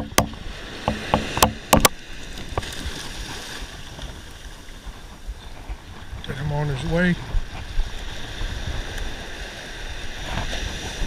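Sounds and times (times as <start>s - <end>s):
sharp clicks and knocks: 0.0s - 2.0s
surf washing up the beach: 0.0s - 11.0s.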